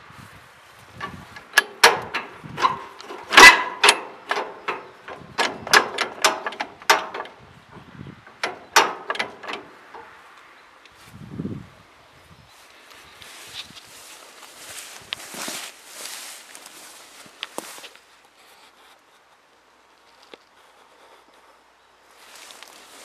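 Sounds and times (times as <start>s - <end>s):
sharp clicks and knocks: 1.0s - 10.5s.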